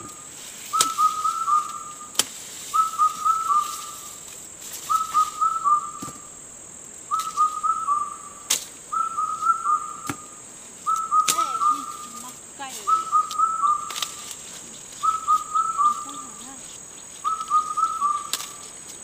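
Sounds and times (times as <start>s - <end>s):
machete chopping stalks: 0.0s - 6.3s, 8.4s - 8.8s, 10.0s - 10.3s, 10.9s - 11.9s, 12.8s - 16.6s, 17.2s - 19.0s
steady high hiss: 0.0s - 19.0s
high whistled phrase: 10.9s - 13.8s.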